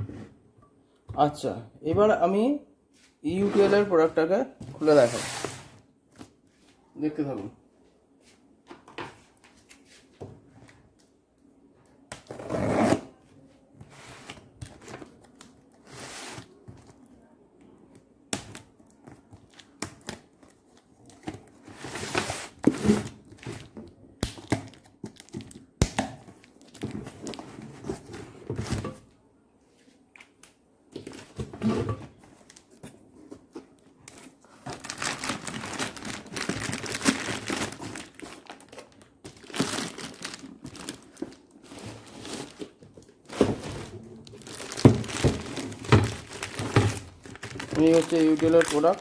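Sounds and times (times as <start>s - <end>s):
plastic bag crinkling: 34.6s - 49.0s.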